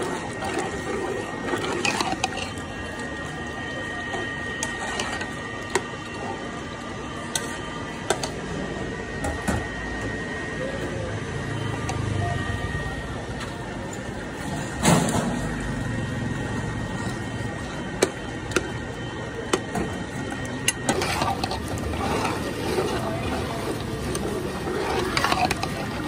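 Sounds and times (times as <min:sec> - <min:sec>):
ladle stirring curry in pot: 0:00.0 - 0:03.4, 0:04.1 - 0:05.9, 0:19.4 - 0:26.0
steady background noise: 0:00.0 - 0:26.0.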